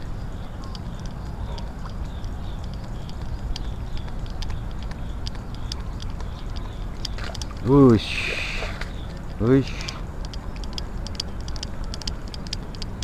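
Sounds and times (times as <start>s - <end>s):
high-pitched ticks: 0.0s - 13.0s
steady low rumble: 0.0s - 13.0s.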